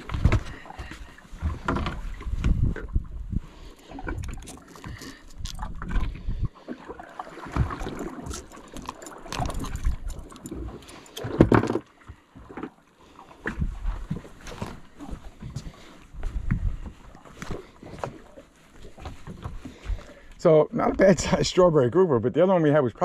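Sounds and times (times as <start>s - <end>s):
wind buffeting microphone: 1.4s - 4.4s, 5.4s - 6.6s, 16.2s - 17.0s.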